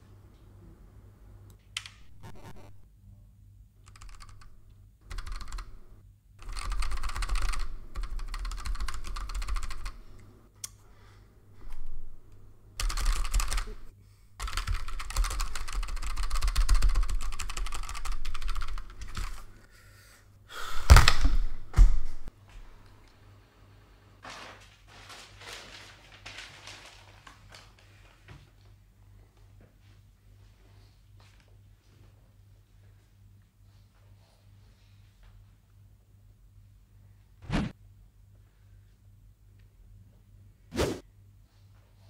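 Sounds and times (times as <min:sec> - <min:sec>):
fast keyboard typing: 0:03.8 - 0:05.8, 0:06.4 - 0:10.0, 0:12.8 - 0:19.6
loud thumps: 0:37.4 - 0:37.7.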